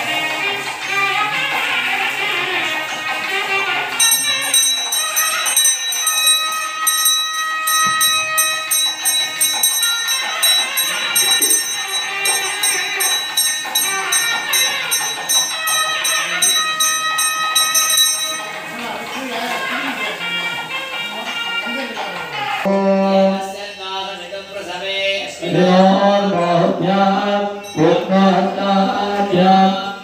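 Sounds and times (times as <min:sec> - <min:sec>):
background music: 0:00.0 - 0:30.0
temple bells ringing rapidly: 0:04.0 - 0:19.2, 0:27.6 - 0:28.3.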